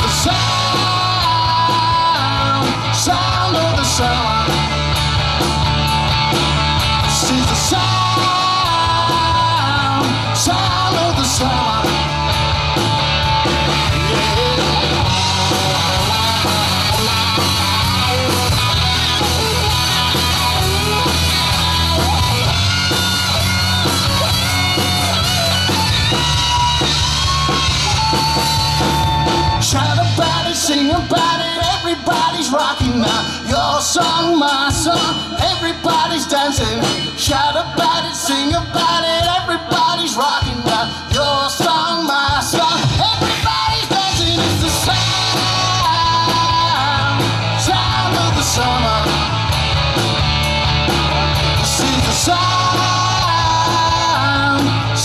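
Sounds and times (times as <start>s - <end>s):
man singing: 0.0s - 4.9s, 7.0s - 12.4s, 13.8s - 49.5s, 51.6s - 55.0s
electric guitar lead: 0.0s - 30.7s, 42.8s - 55.0s
rock band playing: 0.0s - 55.0s.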